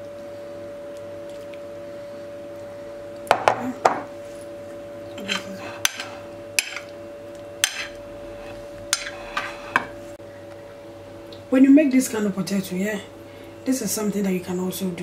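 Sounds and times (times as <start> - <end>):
steady hum: 0.0 - 15.0
metal utensils clinking on dishes: 5.2 - 6.9, 7.6 - 8.0, 8.9 - 9.9.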